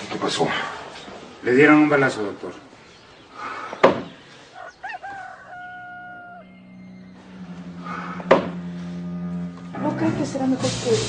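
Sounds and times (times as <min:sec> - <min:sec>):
rooster crowing: 0:04.5 - 0:07.5
low steady tone: 0:06.5 - 0:10.5.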